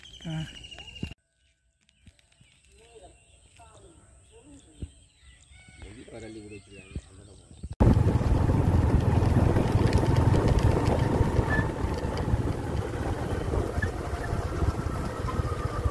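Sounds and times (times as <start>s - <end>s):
wind buffeting microphone: 7.0s - 15.9s
engine running: 7.8s - 15.9s.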